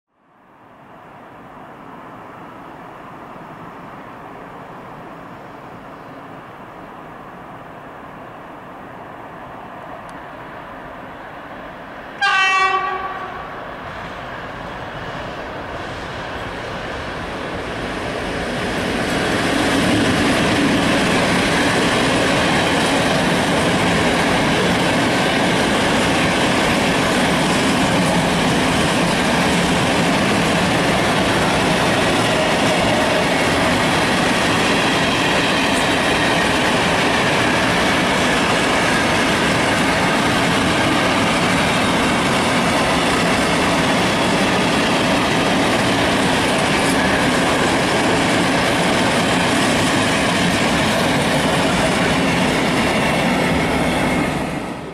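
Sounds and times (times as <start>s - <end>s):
locomotive horn blast: 12.2s - 13.5s
train wheels running over rails: 12.4s - 54.9s.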